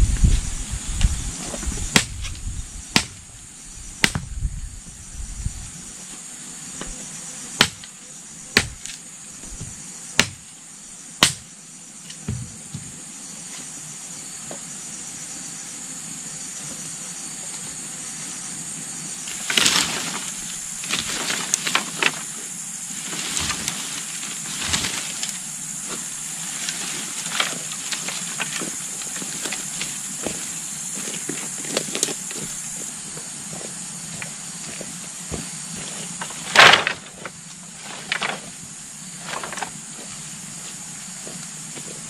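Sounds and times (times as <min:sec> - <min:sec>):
rustling and scraping: 0:00.0 - 0:02.5, 0:19.2 - 0:40.8
high-pitched hiss: 0:00.0 - 0:42.0
sharp knocks: 0:09.6 - 0:10.4, 0:11.2 - 0:11.4.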